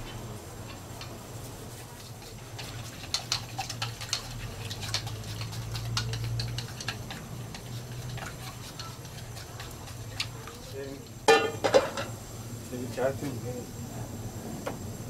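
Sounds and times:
chopsticks clicking in ceramic bowl: 3.1 - 10.3.

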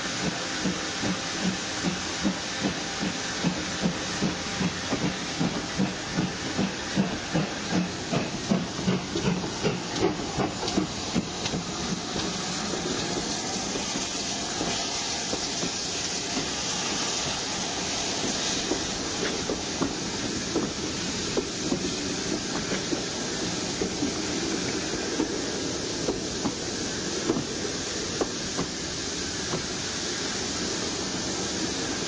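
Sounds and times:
hiss of steam: 0.0 - 32.0
steam locomotive exhaust beats: 0.0 - 32.0
train coaches rolling by: 0.0 - 32.0.

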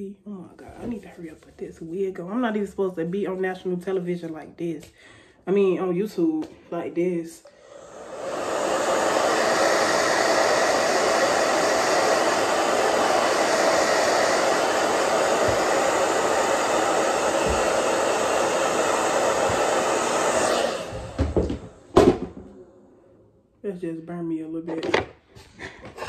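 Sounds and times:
hair dryer blowing: 7.4 - 22.9.

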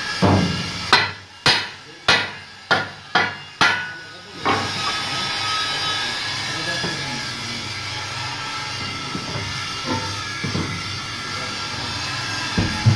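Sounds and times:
hammer striking metal rim: 0.2 - 4.7
machine hum: 8.1 - 12.9.

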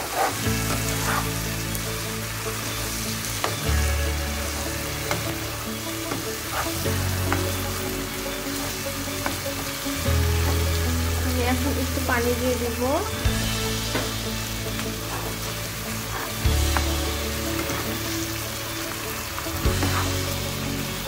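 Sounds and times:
background music low notes: 0.0 - 21.0
fish sizzling in a frying pan: 0.0 - 21.0
spatula scraping and tapping pan: 16.1 - 18.2, 19.7 - 20.4.

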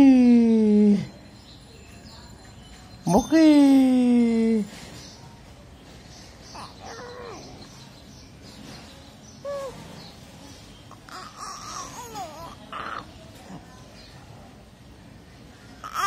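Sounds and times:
baby cooing: 10.9 - 13.1.

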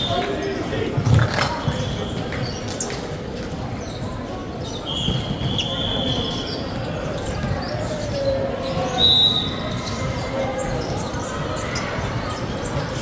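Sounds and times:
players' voices: 0.0 - 13.0
high-pitched shoe squeal: 3.8 - 12.8.

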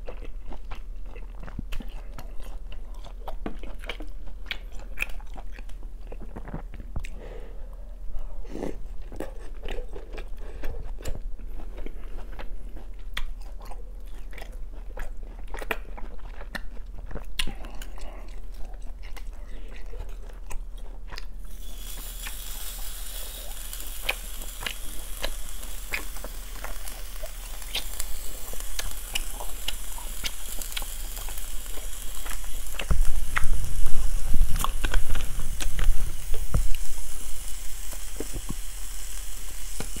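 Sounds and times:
chewing with wet mouth clicks: 0.0 - 7.2, 8.8 - 21.4, 24.0 - 33.5
meat sizzling on grill pan: 21.4 - 40.0.

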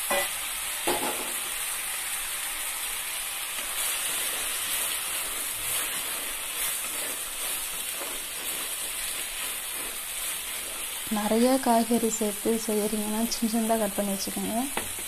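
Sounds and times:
onion and tomato sizzling in oil: 0.0 - 15.0
wooden spatula stirring: 3.6 - 11.1.

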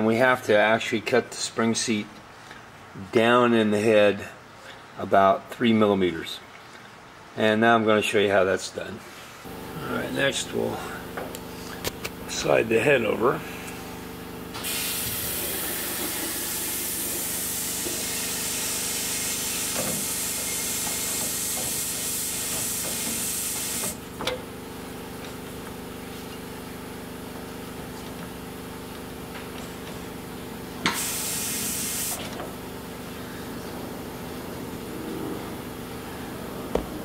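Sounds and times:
machine hum: 9.5 - 22.8, 23.7 - 37.0
compressed air hissing: 13.5 - 24.0, 30.8 - 32.4.

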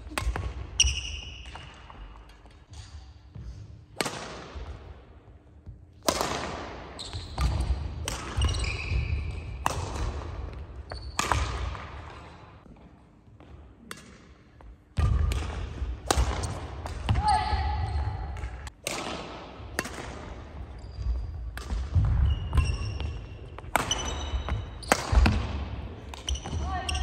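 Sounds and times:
rackets hitting shuttlecock: 0.0 - 3.0, 4.0 - 4.9, 6.0 - 12.4, 13.8 - 17.2, 17.9 - 27.0
shoe squeaks: 0.8 - 1.5, 7.0 - 7.4, 8.4 - 9.4, 10.8 - 11.2, 20.7 - 21.2, 22.2 - 25.1, 26.2 - 27.0.

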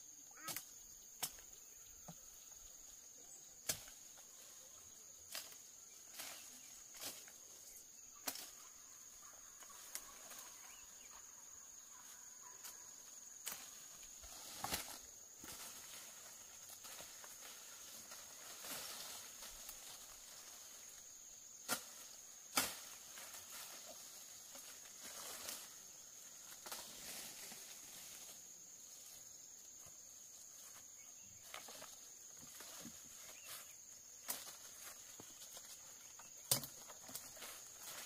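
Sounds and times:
insects droning: 0.0 - 38.0
footsteps through plants: 13.5 - 21.0, 29.8 - 38.0
woody stalks snapping: 21.6 - 24.7, 36.4 - 38.0.

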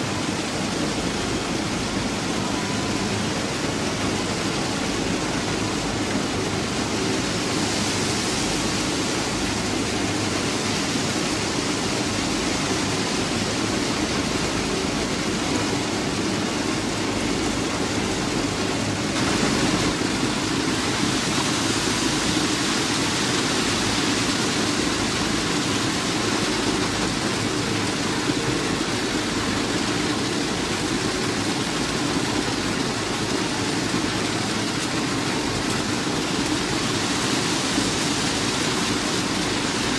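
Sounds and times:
low machine hum: 0.0 - 39.9.

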